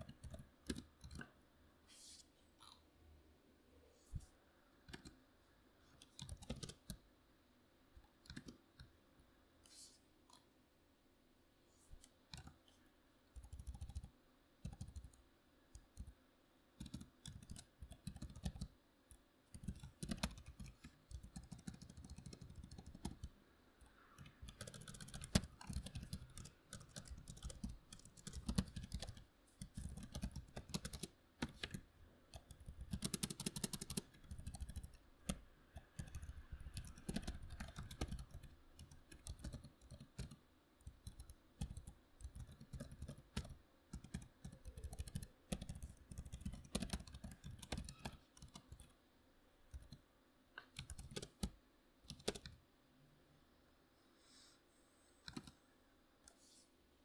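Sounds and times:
typing on a keyboard: 0.0s - 1.3s, 4.9s - 5.2s, 6.0s - 7.0s, 8.0s - 8.9s, 12.0s - 12.6s, 13.4s - 16.2s, 16.8s - 18.7s, 19.5s - 23.4s, 24.2s - 49.0s, 49.7s - 50.0s, 50.6s - 52.6s, 55.2s - 55.6s.

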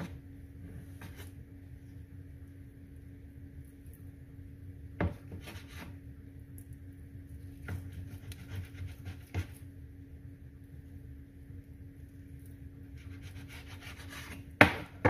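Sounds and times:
knife sawing through dough: 5.3s - 6.0s, 7.8s - 9.6s, 13.0s - 14.5s.

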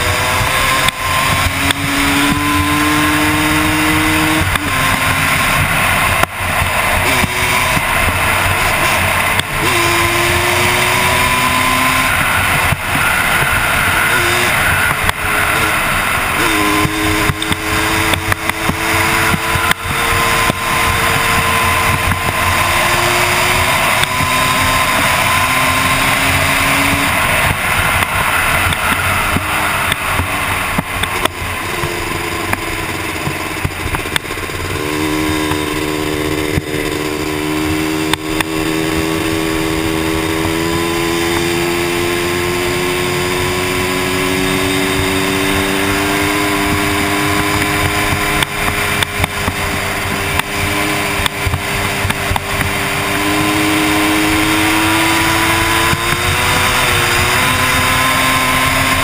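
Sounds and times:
rushing noise: 0.0s - 59.0s
two-stroke quad engine under load: 0.0s - 59.0s
knocks from rough ride: 16.4s - 59.0s.

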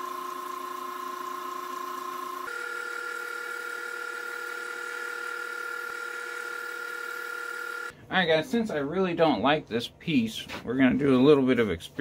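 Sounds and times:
wood lathe motor whine: 0.0s - 7.9s.

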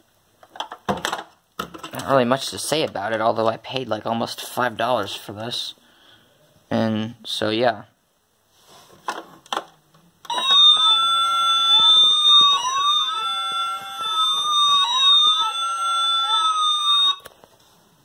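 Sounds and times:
toy wailing siren: 10.3s - 17.3s.

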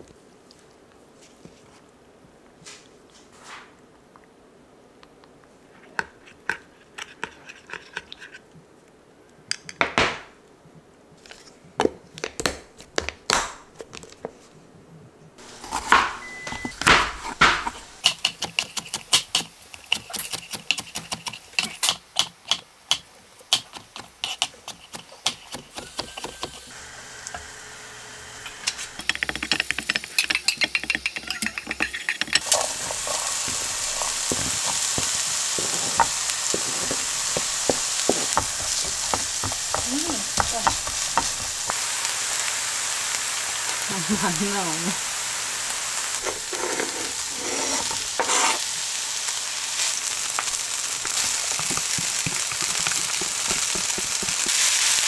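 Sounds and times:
vegetables sizzling in frying pan: 15.4s - 22.1s, 23.5s - 55.0s
knife chopping on cutting board: 15.6s - 16.2s
spoon scraping glass container: 28.7s - 39.1s, 46.2s - 48.6s.

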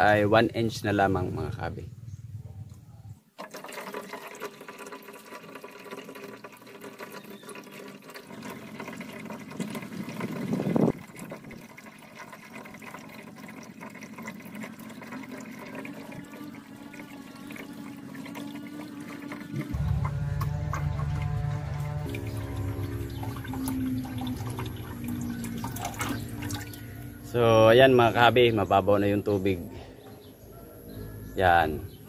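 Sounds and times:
water draining through hose: 3.4s - 28.6s.

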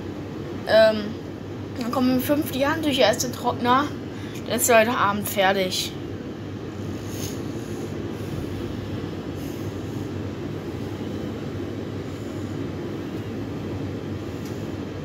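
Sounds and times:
tumble dryer running: 5.0s - 15.0s.

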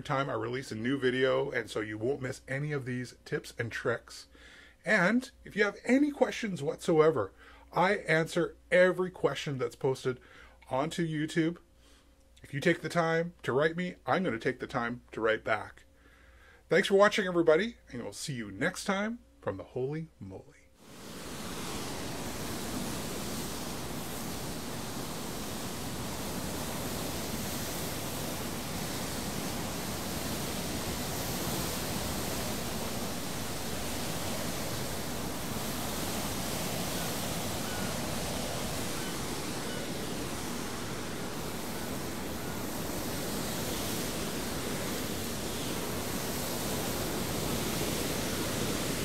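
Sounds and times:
sea water streaming along ship: 20.8s - 49.0s
wind rushing: 20.8s - 49.0s.

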